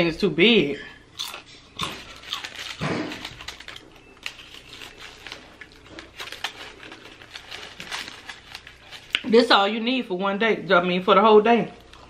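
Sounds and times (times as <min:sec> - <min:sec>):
aluminum foil crinkling: 0:01.2 - 0:09.8.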